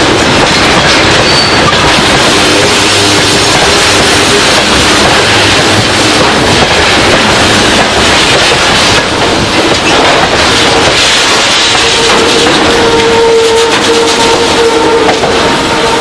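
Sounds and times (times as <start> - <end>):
freight train wheels rumbling on rails: 0.0 - 16.0.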